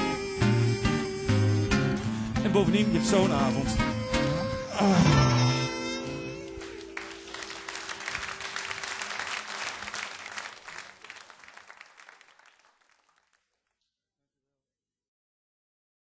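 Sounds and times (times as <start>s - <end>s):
audience applauding: 6.1s - 13.6s.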